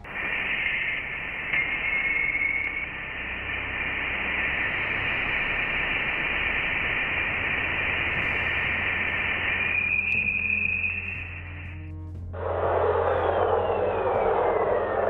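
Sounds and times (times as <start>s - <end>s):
static hiss: 0.0s - 11.8s
low hum: 0.0s - 15.0s
thin high tone: 0.1s - 6.5s, 7.2s - 11.8s.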